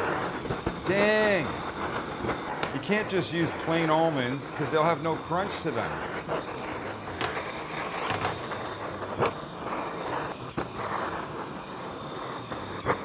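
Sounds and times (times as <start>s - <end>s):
gas torch hissing: 0.0s - 13.0s.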